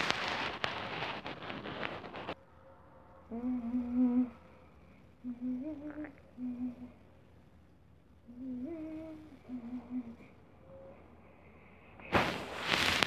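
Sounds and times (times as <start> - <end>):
rustling crackling noise: 0.0 - 2.6, 12.0 - 13.0
person humming: 3.3 - 7.1, 8.3 - 10.4.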